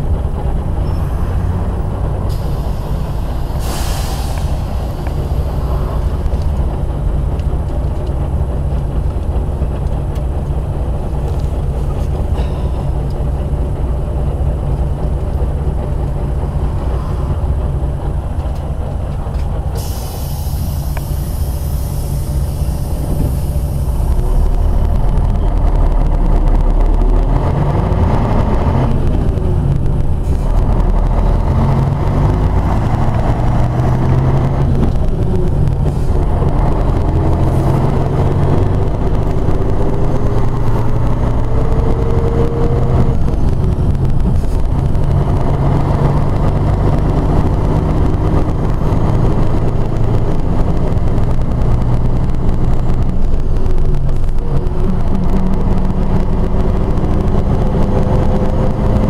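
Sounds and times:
bus diesel engine running: 0:00.0 - 0:59.0
compressed air hiss: 0:02.3 - 0:06.1, 0:19.8 - 0:24.0.

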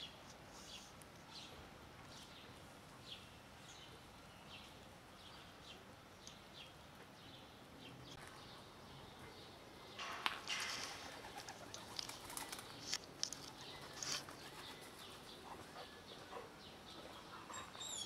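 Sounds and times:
rustling in dry grass and gravel: 0:10.0 - 0:15.4.

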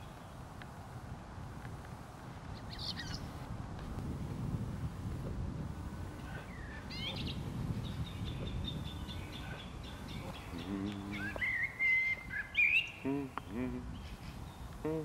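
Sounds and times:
small birds chirping: 0:02.4 - 0:03.4, 0:06.0 - 0:15.0.

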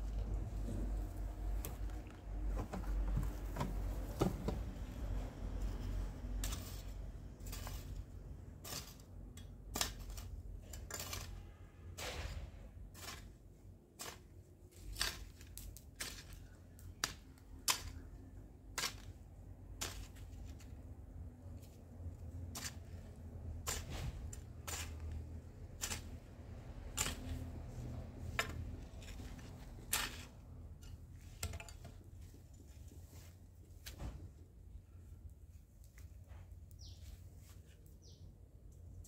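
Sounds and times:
hoe chopping and scraping soil: 0:05.6 - 0:20.9, 0:21.6 - 0:32.1.

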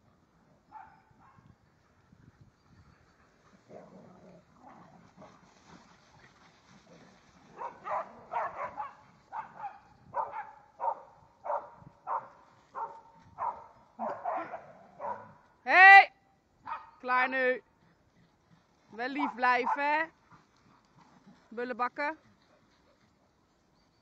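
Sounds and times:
dog barking: 0:00.7 - 0:01.4, 0:07.5 - 0:15.4, 0:16.6 - 0:17.0, 0:19.2 - 0:19.8.

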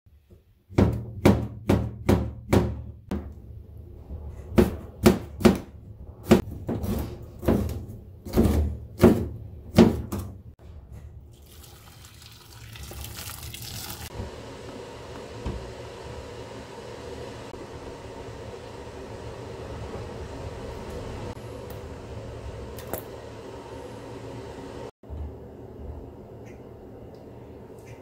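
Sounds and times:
water pouring into metal pot: 0:11.3 - 0:14.1.

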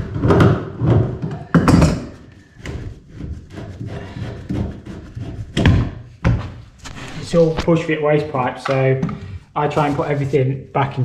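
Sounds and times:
plastic pipe knocks and clicks: 0:00.0 - 0:02.9.

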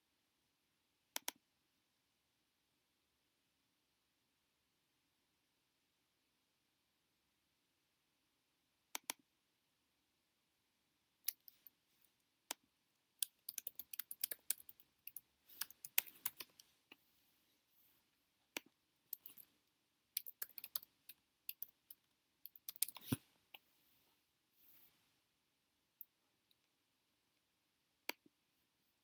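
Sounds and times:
keyboard typing: 0:11.2 - 0:11.8, 0:13.2 - 0:16.8, 0:18.5 - 0:23.6.

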